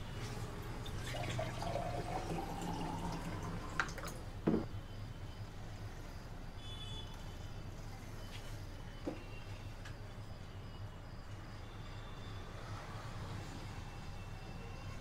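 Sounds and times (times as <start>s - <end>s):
water pouring into a glass: 0.2s - 4.4s
jug thumping on a table: 4.4s - 4.7s.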